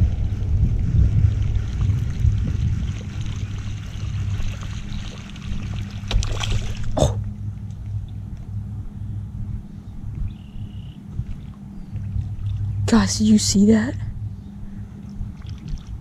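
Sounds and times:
wind rumble on microphone: 0:00.0 - 0:16.0
fish splash on water: 0:04.4 - 0:07.0.

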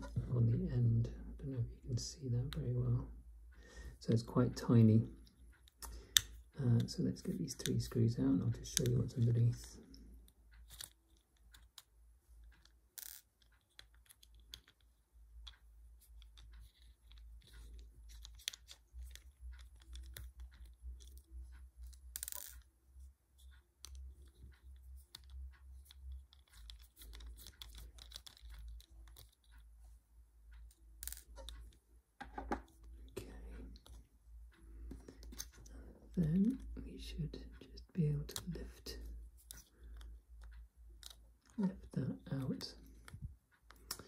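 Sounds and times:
screwdriver clicks and scratches: 0:15.4 - 0:22.6, 0:25.1 - 0:29.6.

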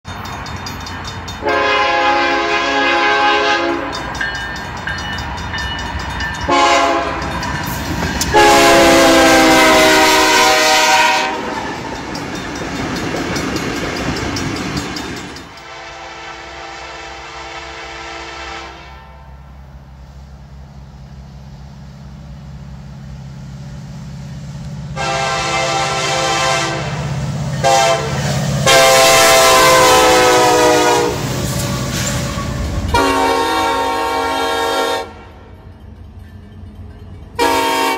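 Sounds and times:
passing train rumble: 0:00.0 - 0:37.9
locomotive air horn blasts: 0:01.4 - 0:04.0, 0:06.5 - 0:07.4, 0:08.3 - 0:11.6, 0:15.6 - 0:19.4, 0:24.9 - 0:31.3, 0:32.3 - 0:35.5, 0:37.4 - 0:37.9.

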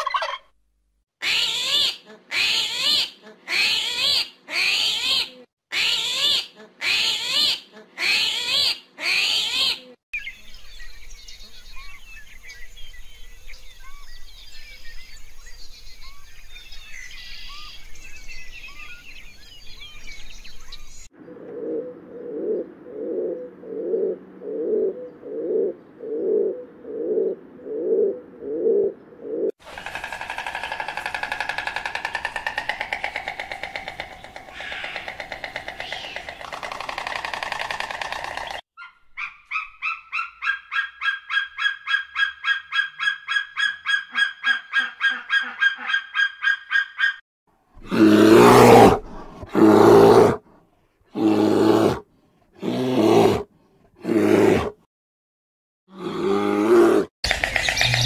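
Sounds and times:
pigeons cooing: 0:21.2 - 0:38.6
small birds chirping: 0:31.5 - 0:40.5, 0:57.2 - 0:58.0.

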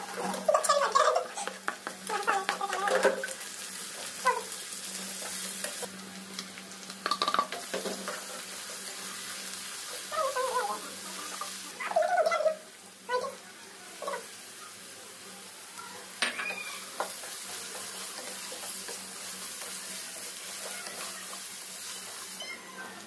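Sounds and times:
vegetables sizzling in a wok: 0:00.0 - 0:23.0
spatula scraping a wok: 0:07.6 - 0:09.2, 0:16.3 - 0:22.4.

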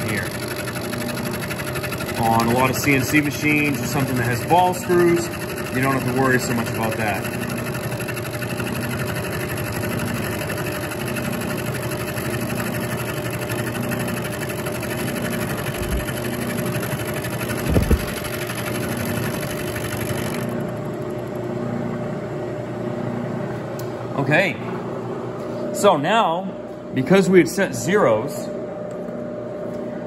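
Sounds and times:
milling machine cutting: 0:00.0 - 0:21.5
spindle running: 0:00.0 - 0:21.9
low thumps: 0:17.6 - 0:18.2.

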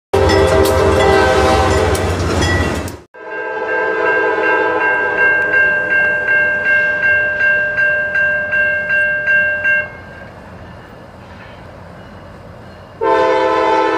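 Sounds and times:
loud train horn: 0:00.1 - 0:02.2, 0:03.2 - 0:05.6, 0:13.0 - 0:13.9
locomotive rumble: 0:00.2 - 0:03.1
crossing bell ringing: 0:00.2 - 0:13.9.

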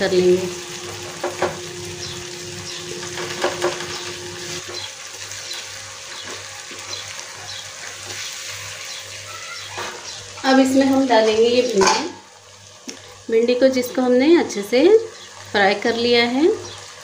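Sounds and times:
masala sizzling in a pan: 0:00.0 - 0:17.0
spatula scraping and tapping pan: 0:03.0 - 0:04.8.

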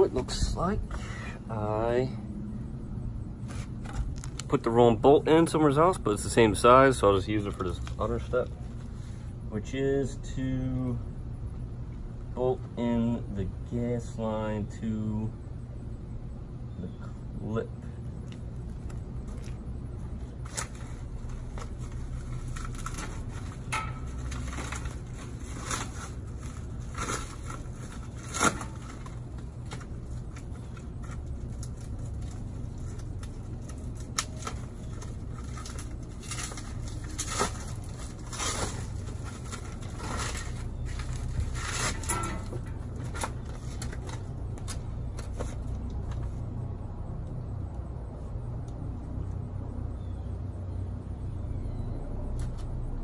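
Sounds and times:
low rumble: 0:17.9 - 0:53.0
paper rustling: 0:20.4 - 0:46.4.

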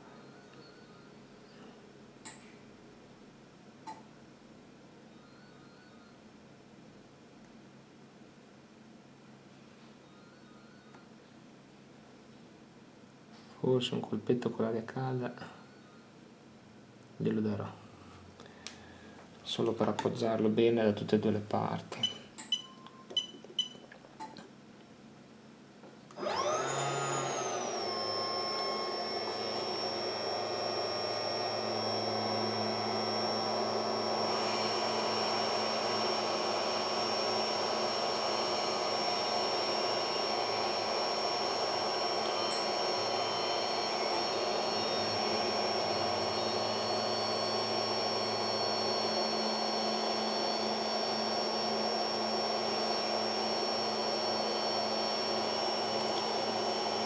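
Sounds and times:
hot-air station fan blowing: 0:26.2 - 0:57.0.

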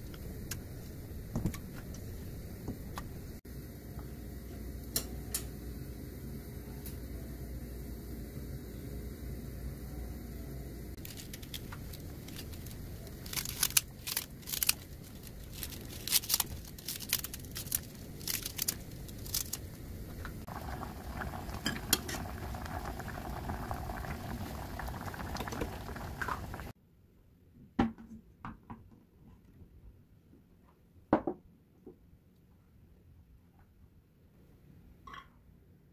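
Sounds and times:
sauce bubbling at a simmer: 0:18.8 - 0:26.7.

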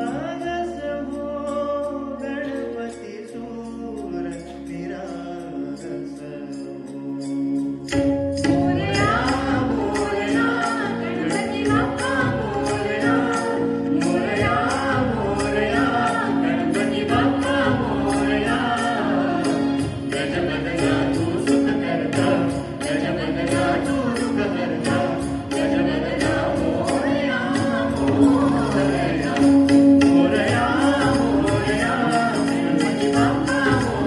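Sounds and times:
people singing into microphones: 0:00.0 - 0:34.0
steady percussion beat: 0:07.8 - 0:34.0.

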